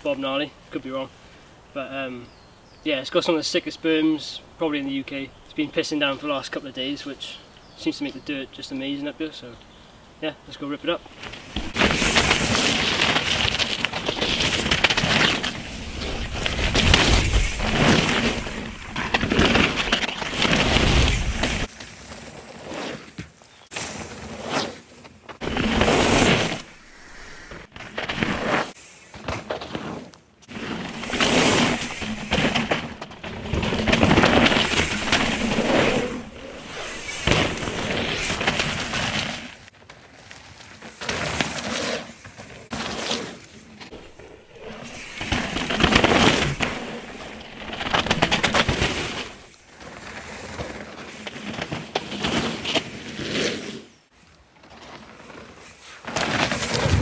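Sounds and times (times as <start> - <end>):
bike tyres rolling over gravel: 11.0 - 24.4, 25.2 - 53.5, 54.2 - 57.0
bike and stone rattles: 11.0 - 53.4, 54.5 - 57.0.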